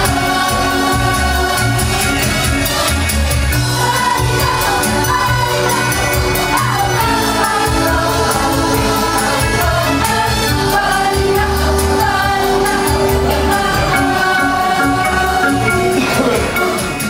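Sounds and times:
choir singing: 0.0 - 17.0
instrumental backing with bass: 0.0 - 17.0.

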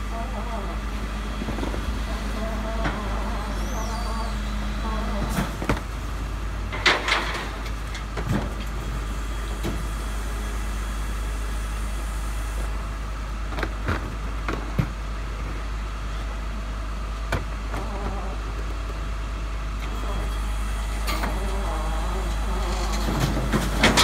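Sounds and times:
garbage truck engine rumbling: 0.0 - 24.0.

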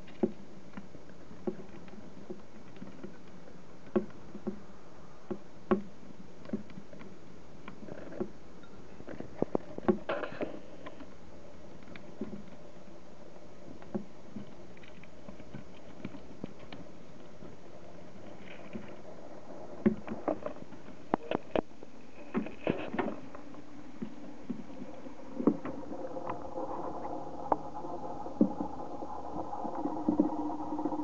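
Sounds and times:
steady hum: 15.2 - 31.0.

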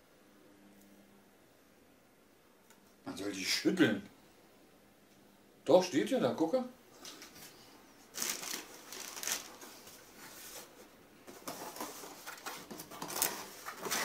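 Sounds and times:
plastic wrapping rustling: 7.0 - 14.0.

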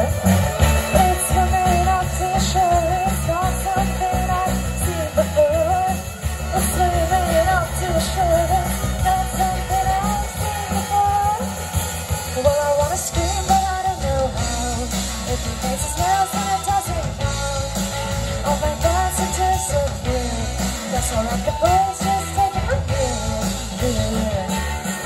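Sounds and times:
bending lead guitar melody: 0.0 - 25.0
live rock band playing: 0.0 - 25.0.

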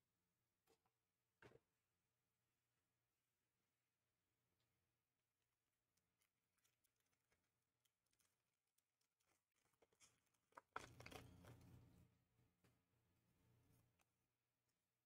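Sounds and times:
cards and packaging clicking: 9.2 - 11.8.

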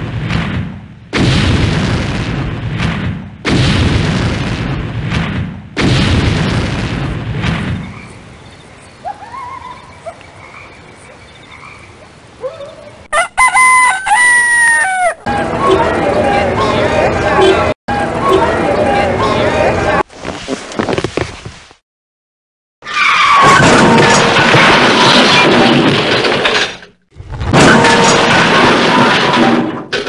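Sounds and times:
loud booms: 0.0 - 8.2.

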